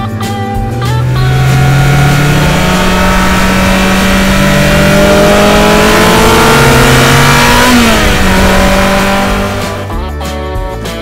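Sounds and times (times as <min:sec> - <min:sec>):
sports car engine accelerating: 0:00.4 - 0:10.0.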